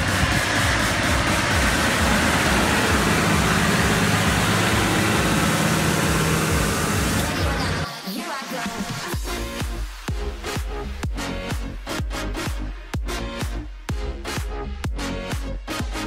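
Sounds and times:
tractor diesel engine under load: 0:00.0 - 0:07.8.

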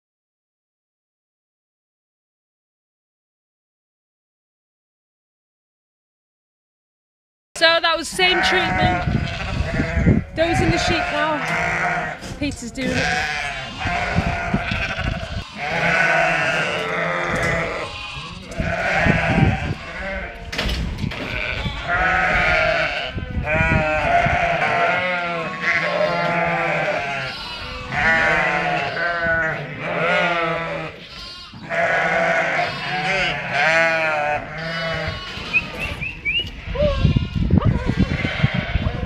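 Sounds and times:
sheep bleating: 0:08.0 - 0:20.5, 0:21.2 - 0:39.0.

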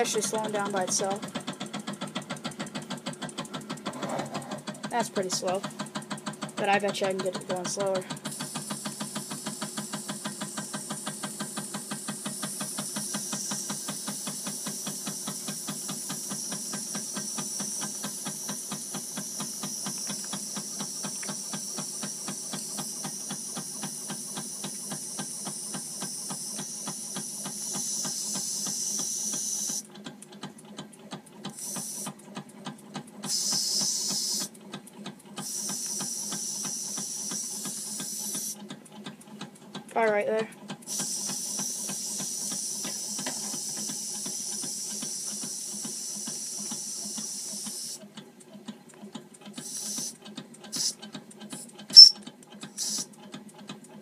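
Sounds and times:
toy steam engine puffing: 0:00.0 - 0:30.0, 0:31.4 - 0:38.8, 0:40.0 - 0:48.2, 0:49.3 - 0:53.7
steam hissing: 0:07.6 - 0:29.8, 0:31.5 - 0:32.2, 0:33.2 - 0:34.5, 0:35.4 - 0:38.6, 0:40.9 - 0:48.0, 0:49.6 - 0:50.1, 0:50.7 - 0:51.0, 0:52.8 - 0:53.1.

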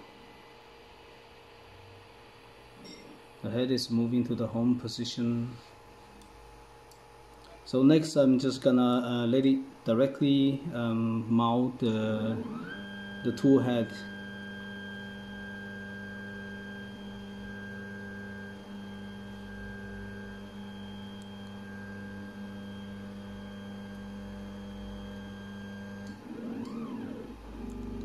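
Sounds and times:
high motor whine: 0:10.9 - 0:28.0
stepper motors humming: 0:11.9 - 0:28.0.

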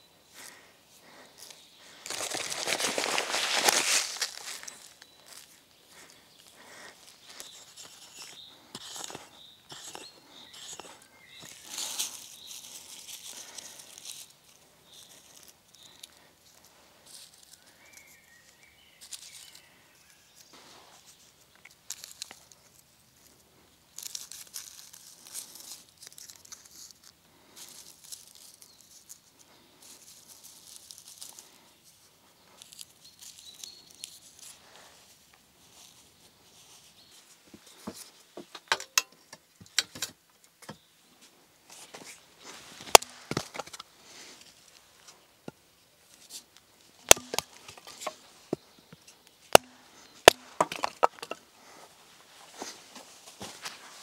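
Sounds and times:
scraping and rustling soil: 0:00.0 - 0:39.1, 0:40.7 - 0:54.0
hands patting soil: 0:00.3 - 0:23.3, 0:41.7 - 0:54.0.

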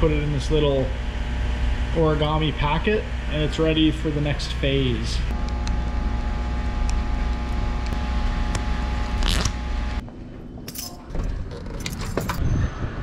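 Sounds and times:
air handling hum: 0:00.0 - 0:12.4
footsteps clicking and scraping: 0:10.0 - 0:12.4.

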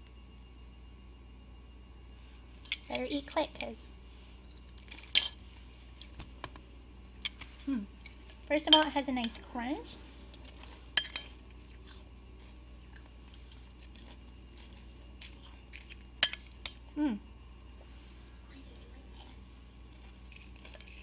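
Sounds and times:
crunchy chewing: 0:10.3 - 0:16.8, 0:18.2 - 0:21.0.

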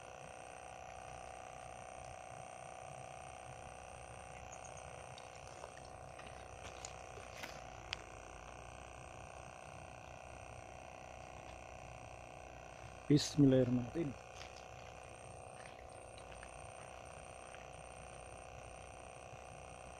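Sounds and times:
faint steady hum: 0:00.0 - 0:19.9
fishing reel clicks and ticks: 0:00.2 - 0:07.1.

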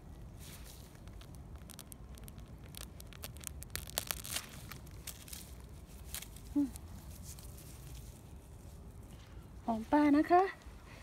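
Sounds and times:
roots snapping and tearing: 0:00.0 - 0:08.3
dry leaf litter crackling: 0:00.0 - 0:09.1.

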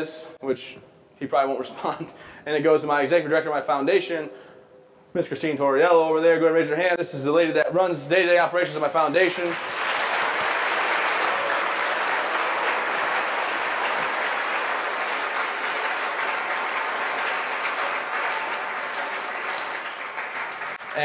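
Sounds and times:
audience applauding: 0:09.1 - 0:21.0.

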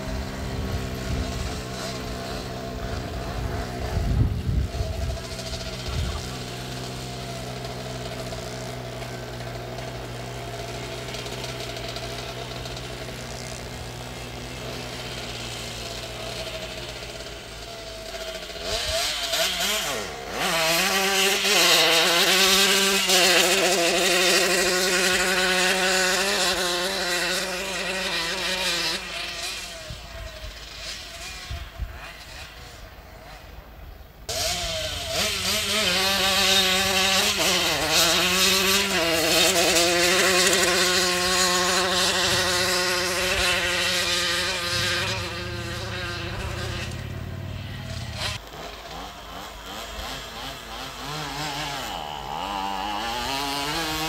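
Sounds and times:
moped engine idling: 0:00.0 - 0:18.8, 0:43.2 - 0:49.0
moped engine revving: 0:00.0 - 0:33.4, 0:34.2 - 0:54.0.

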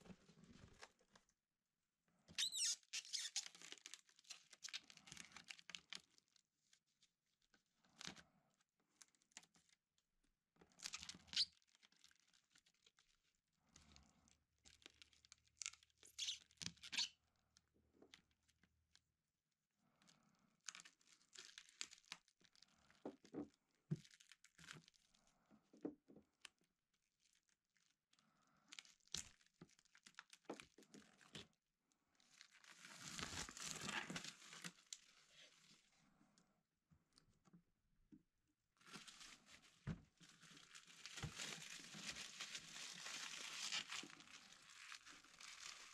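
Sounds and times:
plastic wrap crinkling and tearing: 0:02.4 - 0:06.8, 0:10.7 - 0:13.2, 0:14.7 - 0:17.2, 0:20.6 - 0:23.3, 0:23.9 - 0:25.1, 0:27.2 - 0:27.9, 0:28.7 - 0:31.5, 0:32.2 - 0:35.8, 0:38.8 - 0:45.9.

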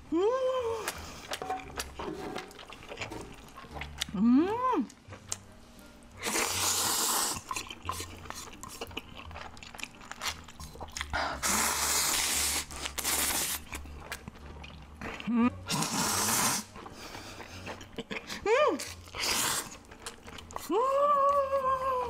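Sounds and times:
wet chewing: 0:00.9 - 0:04.2, 0:06.2 - 0:21.6
slurping noodles: 0:06.2 - 0:09.3, 0:10.3 - 0:13.8, 0:15.7 - 0:17.9, 0:19.0 - 0:19.9.

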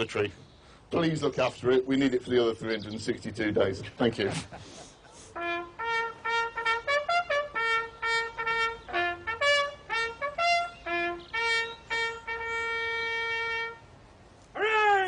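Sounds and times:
bugle call on brass horn: 0:05.3 - 0:13.9.

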